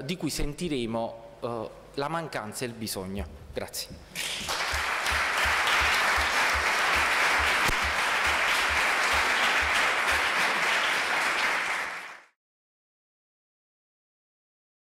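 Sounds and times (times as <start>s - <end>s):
audience applauding: 4.2s - 12.4s.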